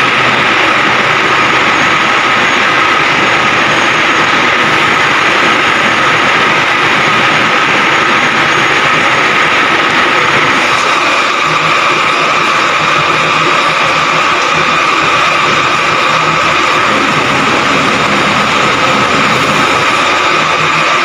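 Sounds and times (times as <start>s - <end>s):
heavy engine running: 0.0s - 21.0s
high machinery whine: 0.0s - 21.0s.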